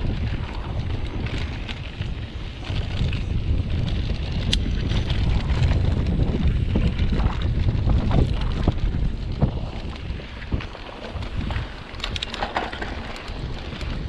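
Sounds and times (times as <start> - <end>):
bike clicks and rattles: 0.0 - 14.0
wind buffeting microphone: 0.0 - 14.0.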